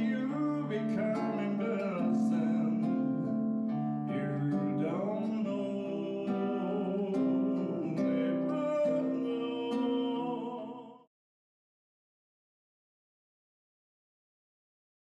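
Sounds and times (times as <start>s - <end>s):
acoustic guitar strumming: 0.0s - 11.0s
man singing: 0.0s - 11.1s.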